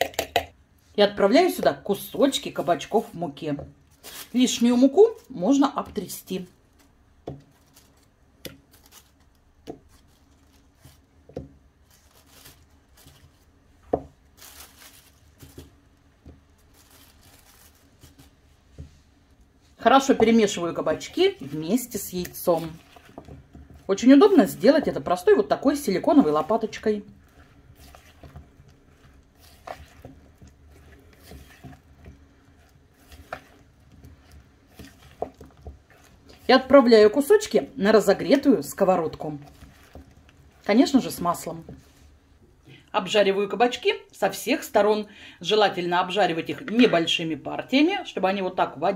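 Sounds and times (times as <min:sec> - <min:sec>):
wet squishing: 0:01.5 - 0:42.9
plastic bag rustling: 0:03.8 - 0:42.6.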